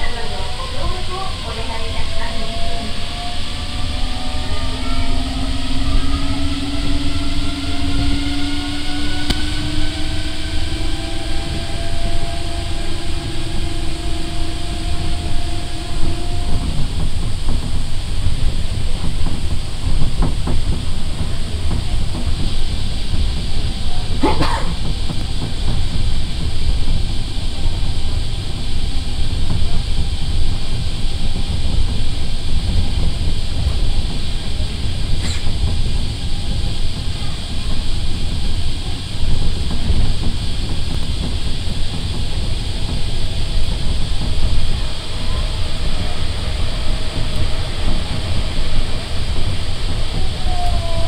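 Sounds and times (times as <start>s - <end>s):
motor whine: 0.0s - 18.8s
hiss: 0.0s - 51.0s
monorail running rumble: 0.0s - 51.0s.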